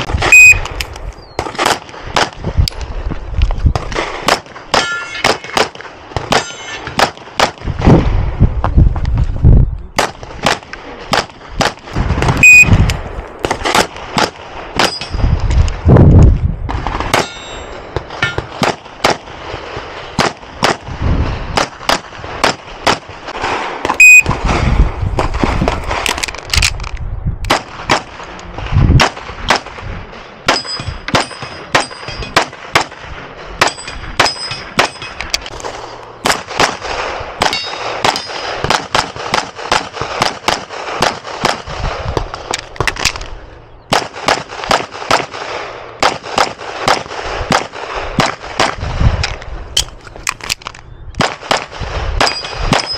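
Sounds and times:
metallic ding of steel targets: 4.8s - 5.3s, 17.2s - 18.5s, 33.6s - 35.2s, 37.5s - 38.4s, 52.2s - 52.9s
rapid pistol fire: 36.2s - 42.1s, 43.9s - 48.9s.

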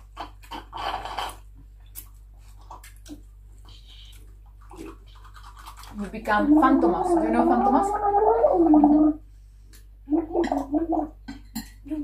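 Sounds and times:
wet chewing: 1.3s - 7.0s.

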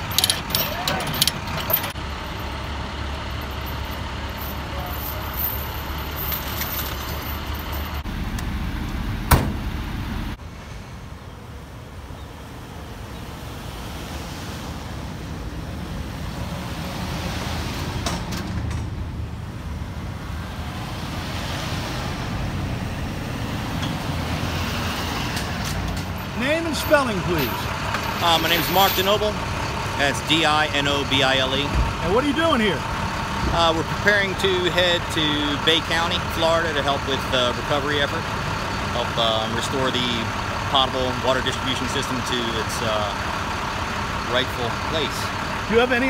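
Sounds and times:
chain rattling: 0.0s - 2.0s, 3.4s - 8.0s
low engine rumble: 0.0s - 46.0s
vehicles pulling away: 0.0s - 46.0s
sharp knock: 9.3s - 9.7s.

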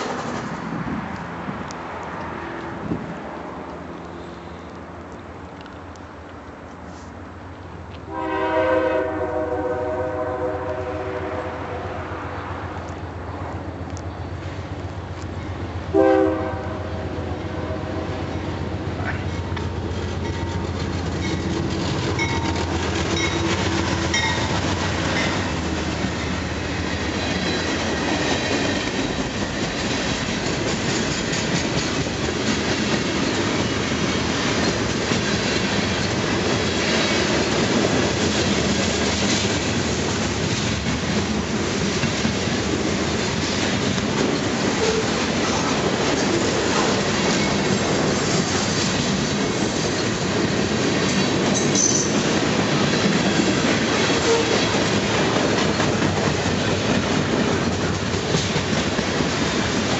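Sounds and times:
train wheels clacking: 0.0s - 1.3s, 18.2s - 59.9s
locomotive engine hum: 0.0s - 59.9s.

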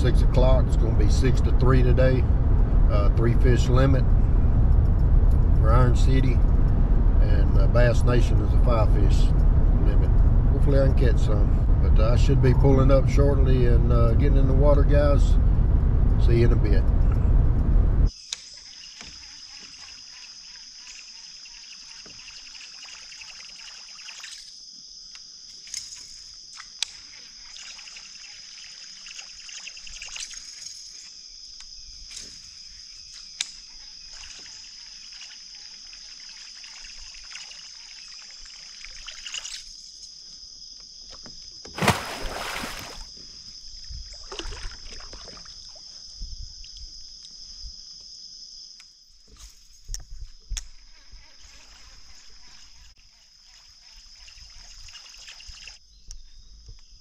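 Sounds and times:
water sloshing against a kayak: 41.6s - 46.2s
water splash: 41.8s - 43.1s, 44.1s - 45.8s.

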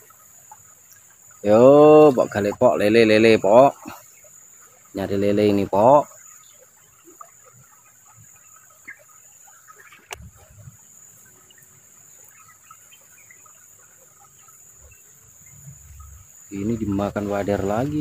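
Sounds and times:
faint insect chirps: 0.0s - 18.0s
insects chirring: 0.0s - 18.0s.

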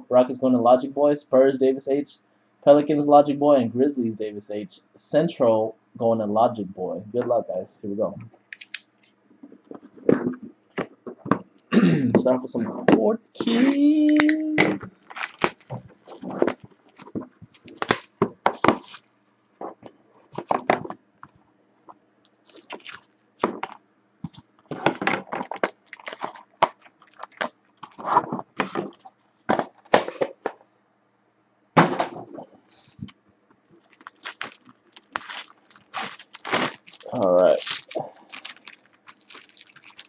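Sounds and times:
packaging crinkling: 8.5s - 8.8s, 13.4s - 19.1s, 22.3s - 29.1s, 33.0s - 40.0s.

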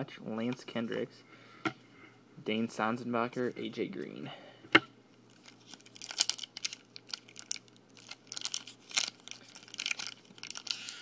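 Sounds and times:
foil wrapper crinkling and tearing: 5.3s - 11.0s.

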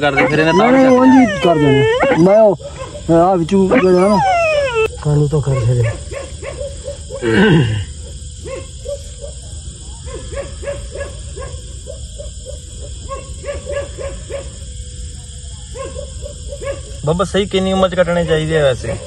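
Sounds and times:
puppy whimpering and yelping: 0.1s - 2.5s, 3.7s - 5.0s.

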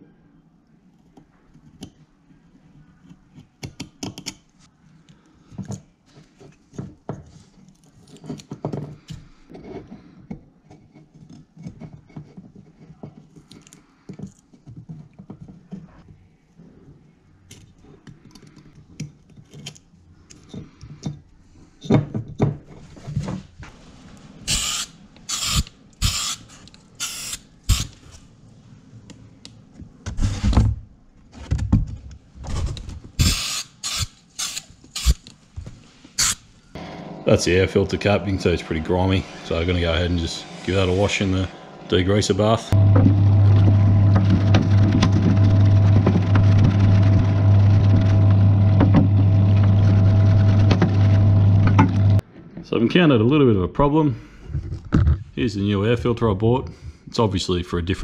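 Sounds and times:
spray paint can hissing: 24.5s - 26.4s.

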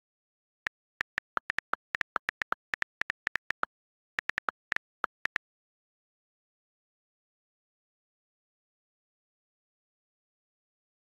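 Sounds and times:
phone keyboard ticks: 0.7s - 5.4s.

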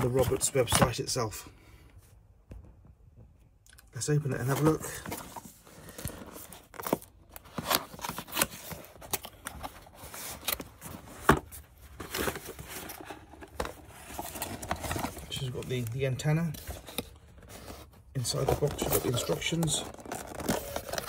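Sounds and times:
cardboard scraping and rustling: 4.4s - 21.0s.

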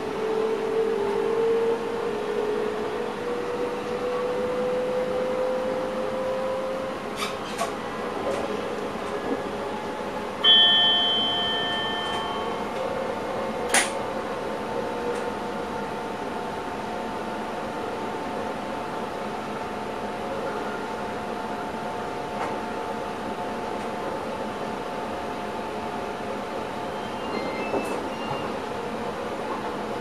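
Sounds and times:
electric train motor hum and whine: 0.0s - 27.3s
two-tone chime: 10.4s - 12.7s.

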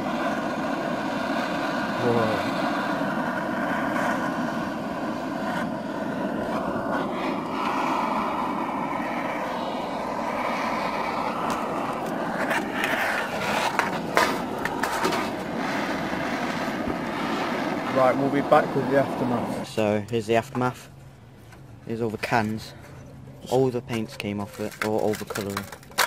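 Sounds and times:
blowtorch flame hissing: 0.0s - 26.0s
sharp clicks and crackles: 23.5s - 26.0s.

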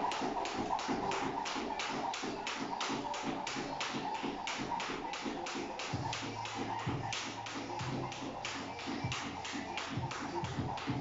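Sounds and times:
jump rope slapping floor: 0.0s - 11.0s.

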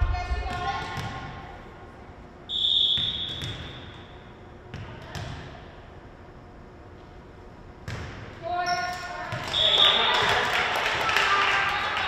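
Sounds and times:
referee's whistle blast: 2.5s - 4.0s.

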